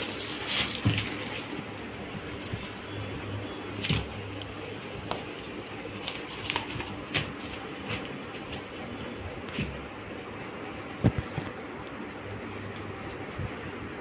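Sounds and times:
umbrella and paper rustling: 0.0 - 3.0
low steady hum: 0.0 - 14.0.

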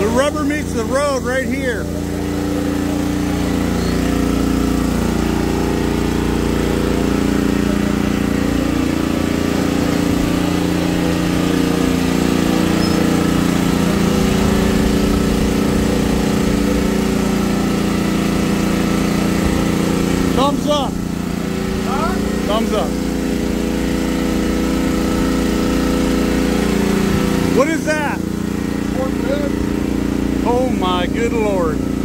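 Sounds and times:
generator engine running: 0.0 - 32.0.

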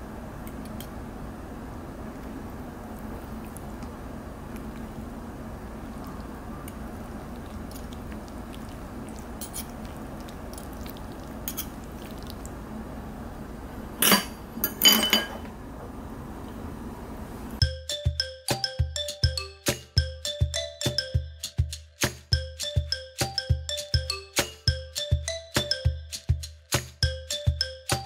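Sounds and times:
low room hum: 0.0 - 21.7
forks clinking against frying pan: 9.4 - 9.7, 11.5 - 11.8.

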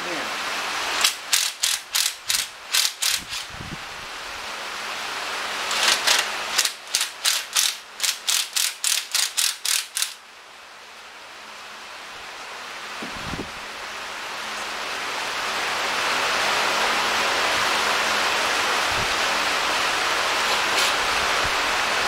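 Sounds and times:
ratchet wrench clicking: 1.0 - 3.5, 5.7 - 10.2.

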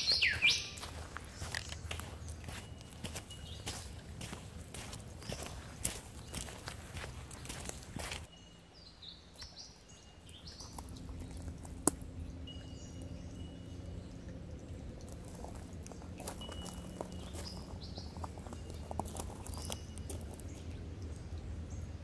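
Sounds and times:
high bird whistles: 0.0 - 0.9
small birds chirping: 0.0 - 22.0.

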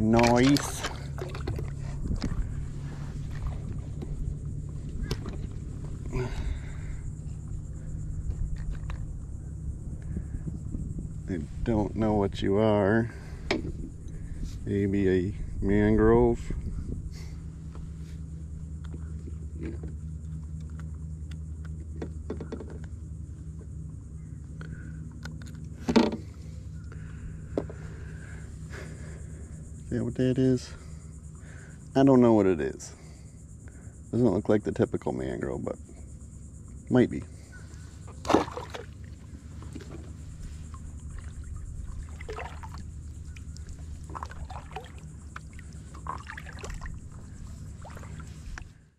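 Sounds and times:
splashes and drips off paddle: 0.0 - 3.9, 38.1 - 48.8
paddle dipping into water: 0.0 - 6.9, 37.7 - 48.8
low engine hum: 0.0 - 48.9.

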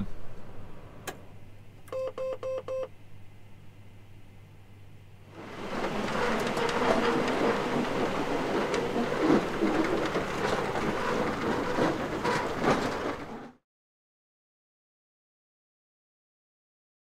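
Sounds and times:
metal roller shutter rattling: 5.3 - 13.6.

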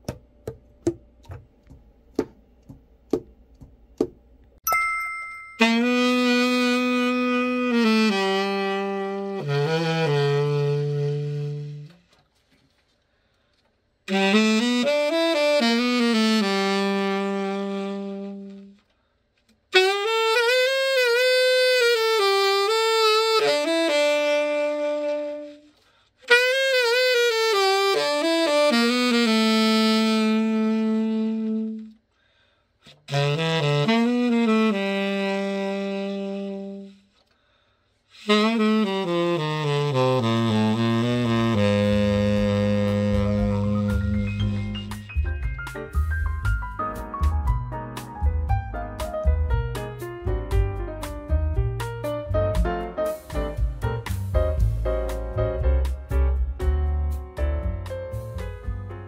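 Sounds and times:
tenor saxophone melody: 5.5 - 12.2, 14.0 - 18.9, 19.7 - 32.1, 32.8 - 37.2, 38.0 - 45.4.

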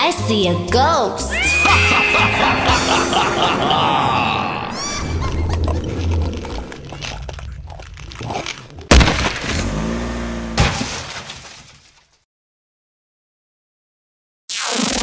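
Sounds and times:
cartoon crash: 8.9 - 9.7.

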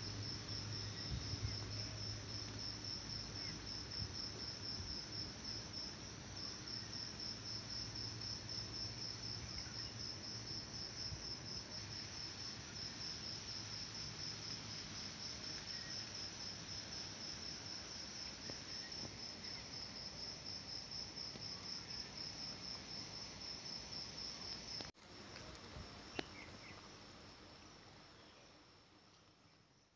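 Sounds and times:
insects trilling: 15.3 - 17.5, 24.1 - 28.6.

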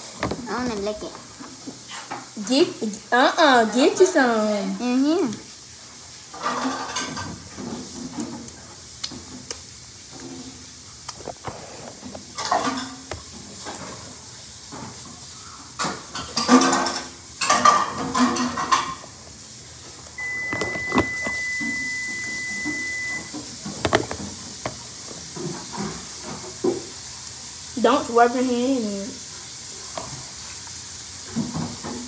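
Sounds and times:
utensils clinking and scraping: 16.2 - 19.0
steady high tone: 20.2 - 23.3.

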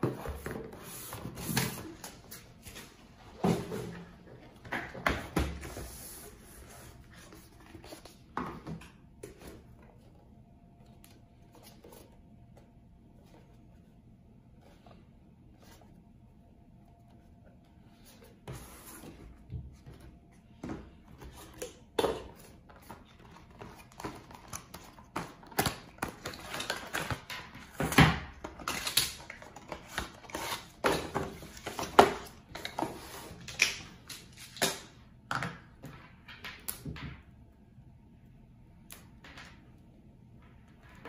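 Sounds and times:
packaging handling clicks and rustles: 21.4 - 34.9.

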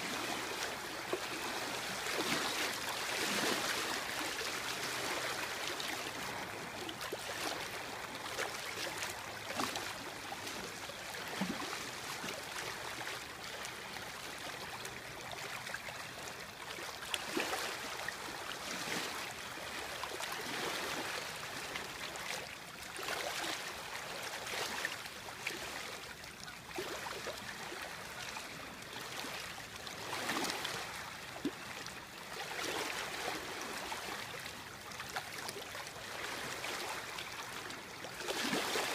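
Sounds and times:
soft water splash: 0.0 - 38.9
water lapping: 0.0 - 38.9.

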